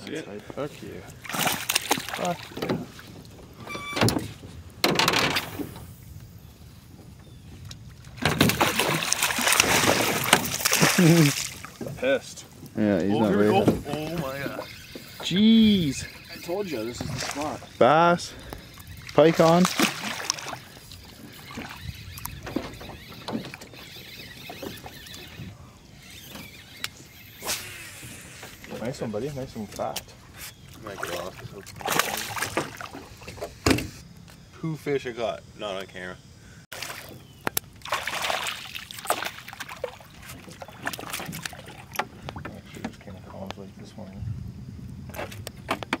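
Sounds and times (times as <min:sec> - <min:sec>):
fish splashing water: 0:01.2 - 0:03.1, 0:08.1 - 0:11.8, 0:14.2 - 0:25.4, 0:30.6 - 0:33.4, 0:36.7 - 0:42.2.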